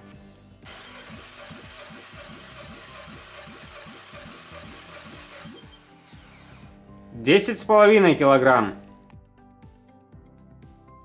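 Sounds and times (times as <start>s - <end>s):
engine cranking with pulses: 0.6s - 6.7s.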